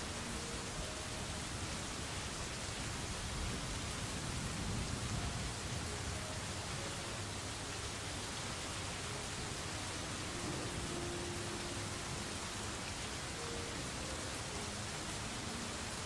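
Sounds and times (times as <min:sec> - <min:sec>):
rain hissing: 0:00.0 - 0:16.0.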